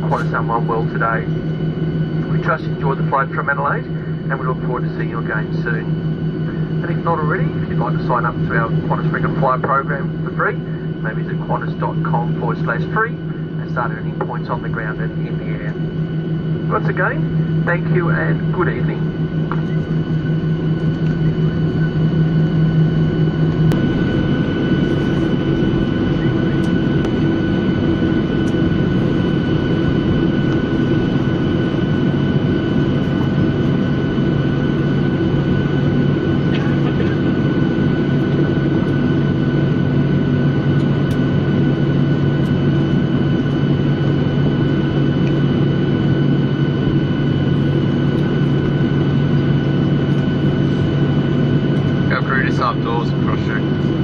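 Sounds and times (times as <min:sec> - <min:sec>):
jet engines idling in cabin: 0:00.0 - 0:54.0
low hum: 0:00.0 - 0:54.0.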